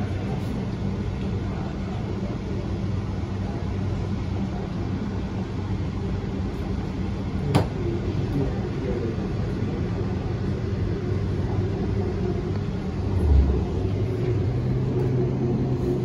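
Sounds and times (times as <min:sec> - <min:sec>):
train rumbling from inside carriage: 0:00.0 - 0:16.0.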